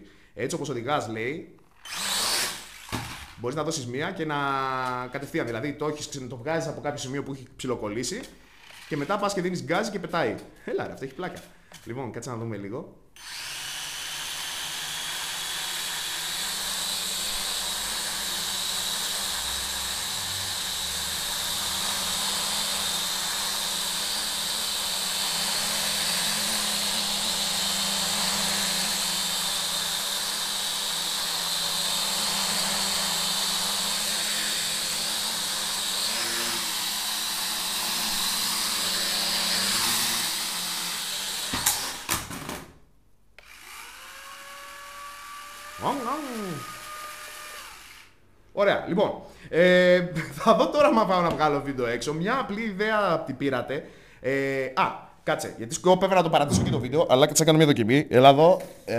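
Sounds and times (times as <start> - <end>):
toy drone motors whirring: 1.7 - 3.4, 8.6 - 9.2, 13.2 - 42.2, 43.4 - 48.2.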